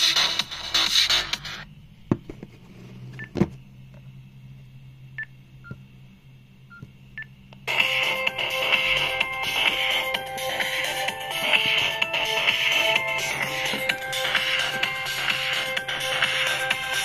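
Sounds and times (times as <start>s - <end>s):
electronic music from phone speaker: 0.0s - 1.7s, 7.6s - 17.0s.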